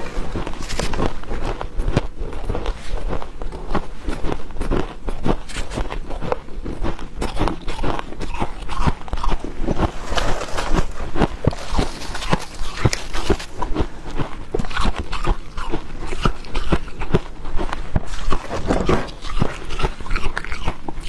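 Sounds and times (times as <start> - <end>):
frost crunching and squeaking: 7.2 - 21.0.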